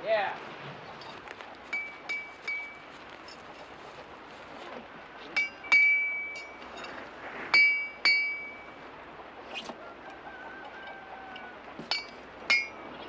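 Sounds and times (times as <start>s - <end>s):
metal tools clinking on wheel: 1.0s - 3.7s, 5.4s - 7.0s.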